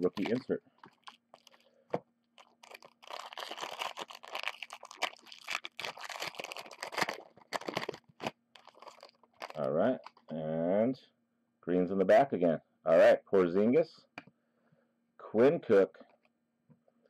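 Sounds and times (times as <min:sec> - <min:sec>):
foil wrapper being torn open: 0:00.0 - 0:01.6, 0:02.4 - 0:10.3
foil wrapper crinkling: 0:00.0 - 0:01.7, 0:02.4 - 0:10.3.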